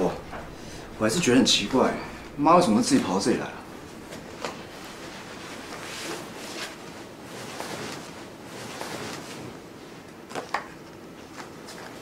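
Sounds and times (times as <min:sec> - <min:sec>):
towel rubbing hair: 0:04.1 - 0:09.5.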